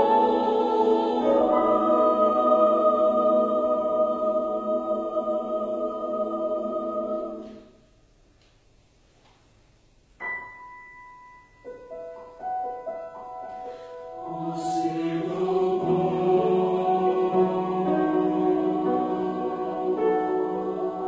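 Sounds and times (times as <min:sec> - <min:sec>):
choir singing sustained chord: 0:00.0 - 0:07.9, 0:13.7 - 0:21.0
piano single notes: 0:10.2 - 0:14.4.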